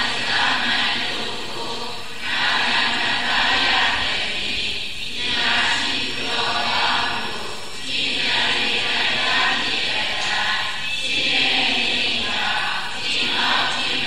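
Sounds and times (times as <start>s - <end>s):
group of voices chanting: 0.0s - 14.0s.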